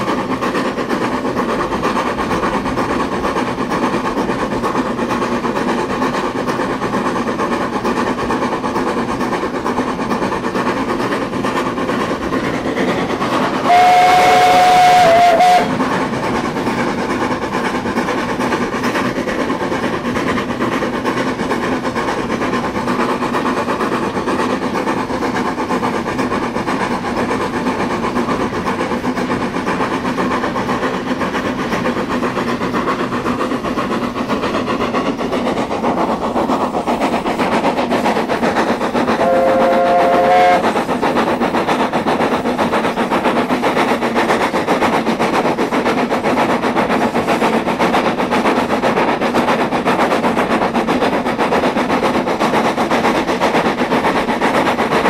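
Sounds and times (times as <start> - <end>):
steam locomotive exhaust beat: 0.0 - 55.0
two-note steam whistle: 13.6 - 15.8, 39.2 - 40.6.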